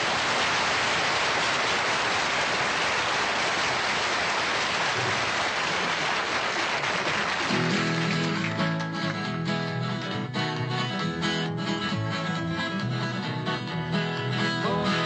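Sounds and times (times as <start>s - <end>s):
audience applauding: 0.0s - 9.3s
acoustic guitar: 7.4s - 15.0s
double bass: 7.6s - 15.0s.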